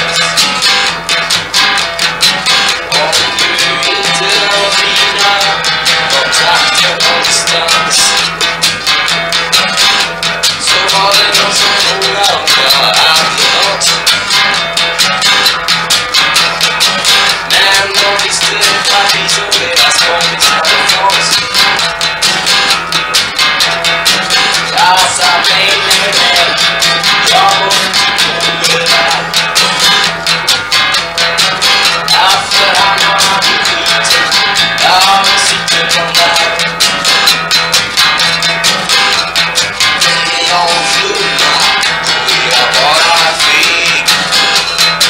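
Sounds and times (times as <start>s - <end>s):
acoustic guitar strumming: 0.0s - 45.0s
sliding guitar notes: 0.0s - 45.0s.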